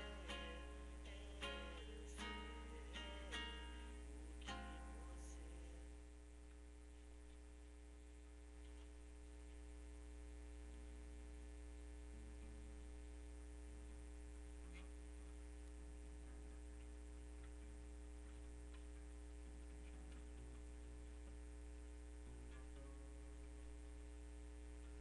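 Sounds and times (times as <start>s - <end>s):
low electrical mains hum: 0.0s - 25.0s
faint ticks: 13.8s - 23.0s.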